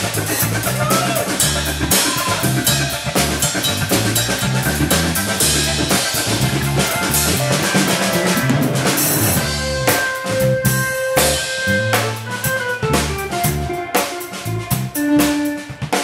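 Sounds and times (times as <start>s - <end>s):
drum kit with cymbals and snare: 0.0s - 16.0s
electric bass line: 0.0s - 16.0s
electric organ: 0.0s - 16.0s.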